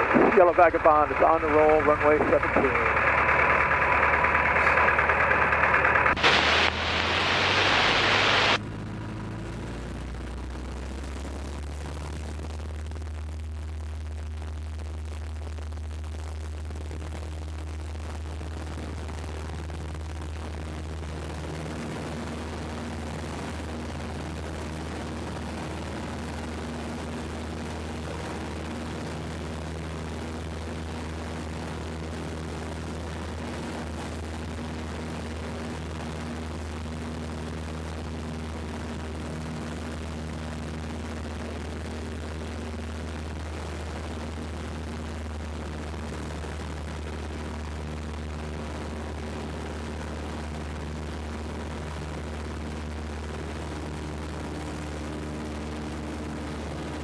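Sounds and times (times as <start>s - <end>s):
airplane engine droning: 0.0s - 13.0s, 18.1s - 57.0s
loud hiss: 6.2s - 8.6s.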